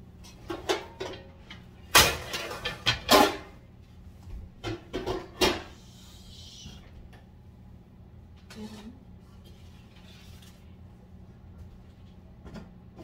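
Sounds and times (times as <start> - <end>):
dishes clattering: 0.3 - 3.6, 4.6 - 5.7.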